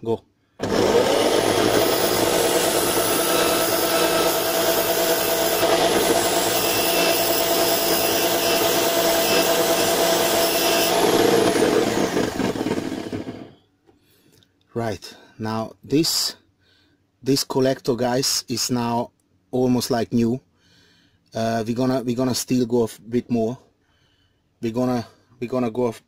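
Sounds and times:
electric drill whine: 0.6 - 13.6
file rasping on metal: 1.8 - 11.6.

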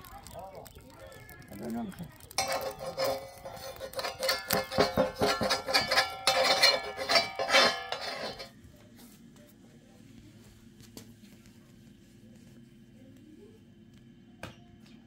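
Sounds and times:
metal spatula scraping a griddle: 2.4 - 8.5.

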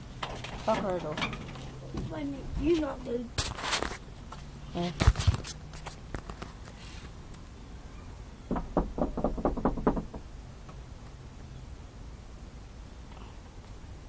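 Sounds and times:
knuckles knocking on a door: 8.5 - 10.3.

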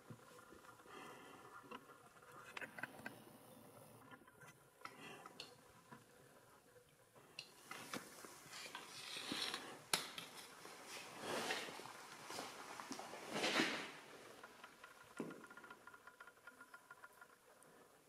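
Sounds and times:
small clicks and clinks: 14.3 - 18.0.

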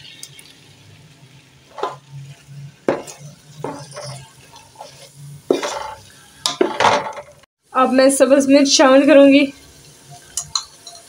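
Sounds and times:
spatula scraping pot: 1.7 - 7.2.

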